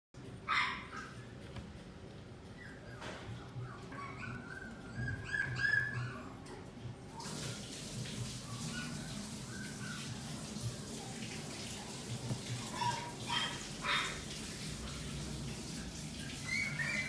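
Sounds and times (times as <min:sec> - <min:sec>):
young animal whimpering: 0:02.5 - 0:06.5.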